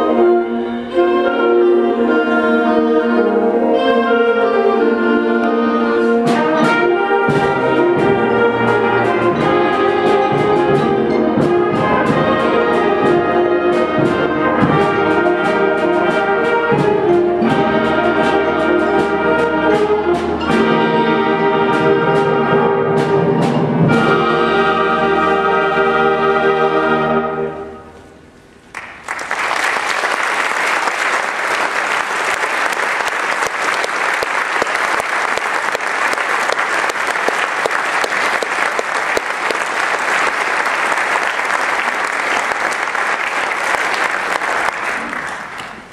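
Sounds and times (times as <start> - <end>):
concert band playing chords: 0.0 - 27.9, 29.0 - 45.9
percussion strikes: 6.1 - 26.0
audience applause: 28.7 - 45.9.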